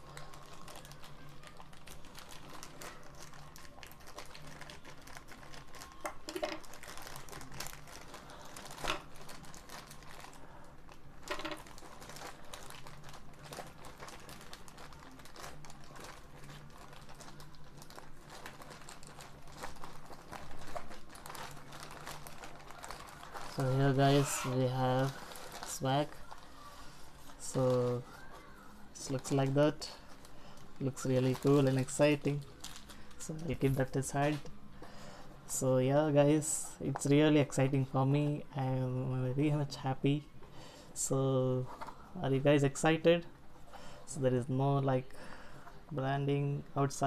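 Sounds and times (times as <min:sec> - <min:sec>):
plastic bag crinkling and tearing: 0:00.0 - 0:34.6.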